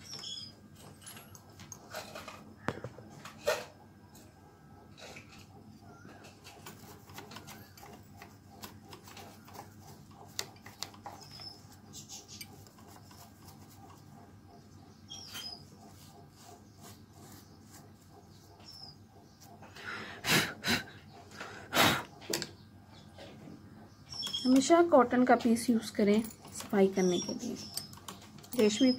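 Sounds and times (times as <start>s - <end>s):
cloth rubbing on metal: 15.3s - 18.5s.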